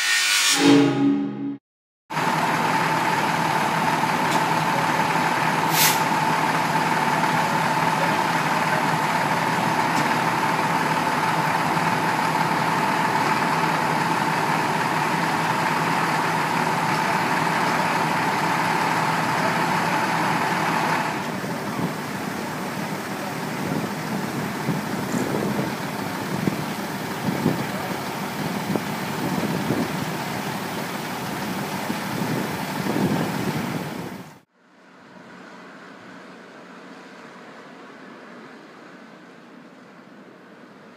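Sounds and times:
high whine: 0.0s - 1.6s
diesel engine running: 2.1s - 40.9s.

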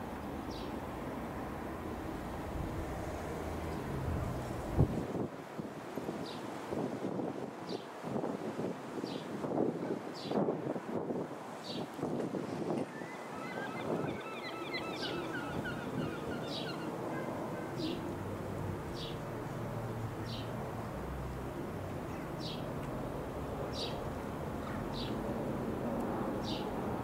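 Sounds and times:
jet flying overhead: 0.2s - 5.3s, 12.6s - 27.0s
bird calling: 12.8s - 18.1s
bird twittering: 12.9s - 18.0s.

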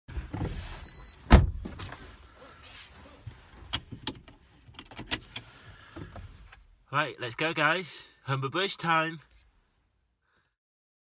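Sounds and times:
car door shutting: 0.2s - 2.1s
seat belt clicks and rustles: 3.1s - 6.7s.

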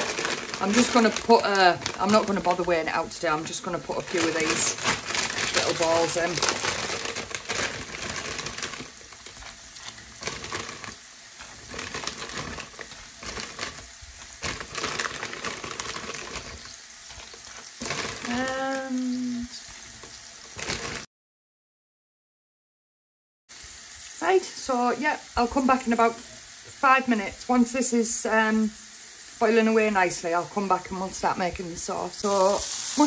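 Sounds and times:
mushrooms sizzling in a frying pan: 0.0s - 21.1s, 23.5s - 33.0s
pasta dropping into boiling water: 3.5s - 18.8s, 20.0s - 21.1s.

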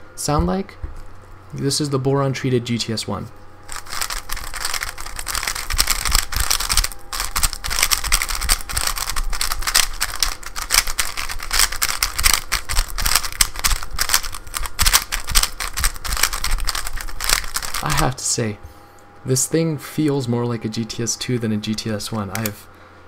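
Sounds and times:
speed cube clicking rapidly: 3.7s - 18.1s.

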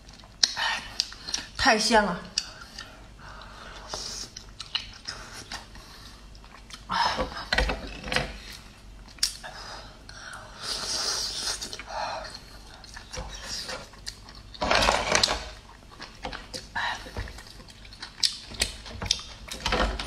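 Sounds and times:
wet slurping and chewing: 10.6s - 19.6s.

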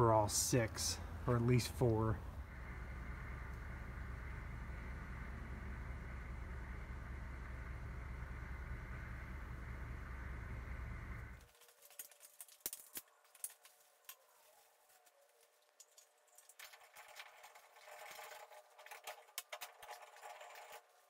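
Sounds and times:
steady low rumble: 0.0s - 11.4s
metal clinks and rattles: 11.4s - 13.7s, 15.8s - 20.9s.

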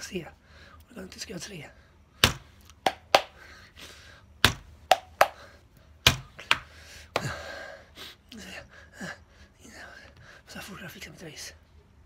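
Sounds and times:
laptop key taps: 4.9s - 5.4s.

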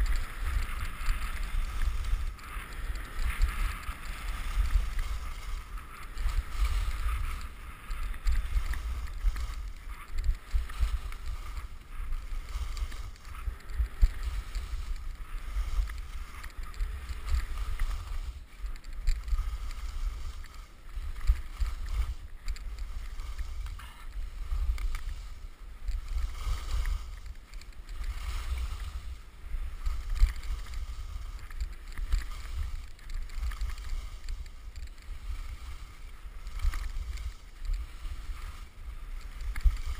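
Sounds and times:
wind buffeting microphone: 0.0s - 20.5s
skis sliding over snow: 0.0s - 39.9s.

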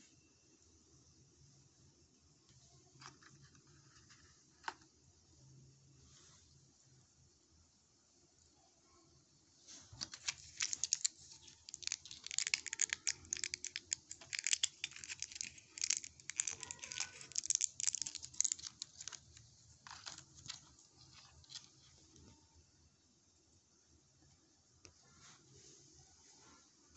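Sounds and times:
blister pack crackling and clicking: 10.0s - 21.9s.

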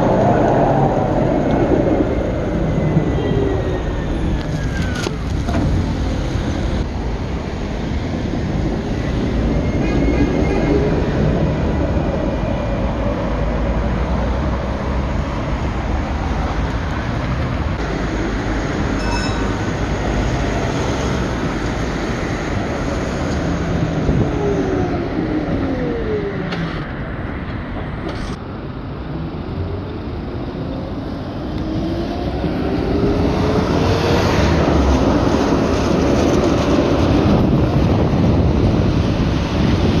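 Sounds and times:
tram wheels rumbling on rails: 0.0s - 40.0s
short chime: 19.0s - 19.7s.

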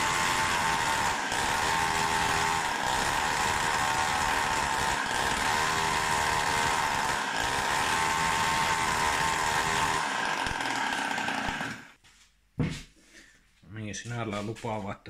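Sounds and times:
sputtering two-stroke engine: 0.0s - 11.9s.

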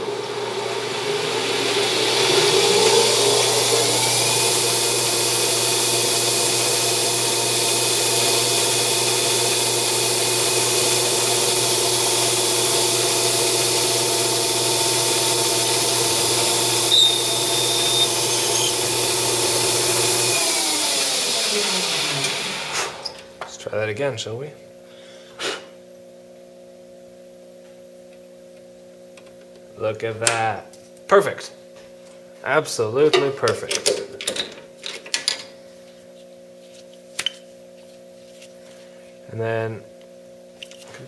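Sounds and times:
metal lathe spindle whining: 0.0s - 23.2s.

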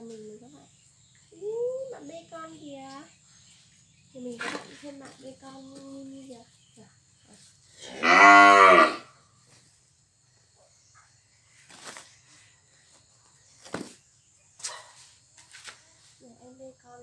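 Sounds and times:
cow mooing: 7.9s - 9.1s.

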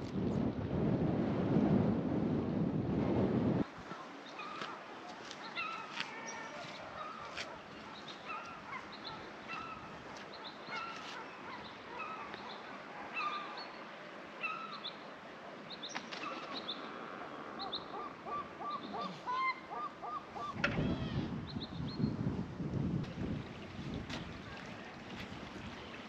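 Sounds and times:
birds calling: 3.8s - 22.1s.

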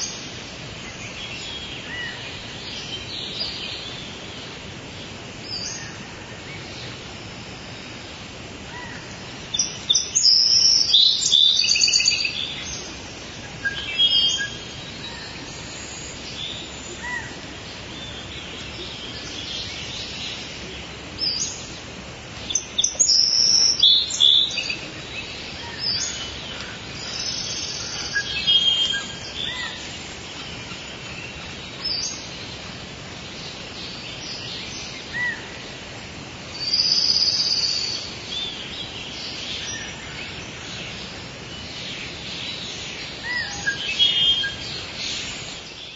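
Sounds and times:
birds calling and chirping: 0.0s - 45.9s
forest background hiss: 0.0s - 45.9s.

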